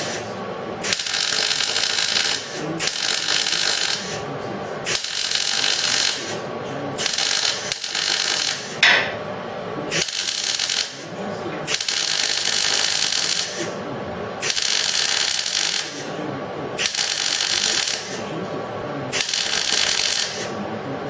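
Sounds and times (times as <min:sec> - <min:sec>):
welder crackling hiss: 0:00.8 - 0:04.2, 0:04.9 - 0:06.3, 0:07.0 - 0:08.8, 0:09.9 - 0:11.0, 0:11.7 - 0:13.7, 0:14.4 - 0:16.0, 0:16.8 - 0:18.2, 0:19.1 - 0:20.5.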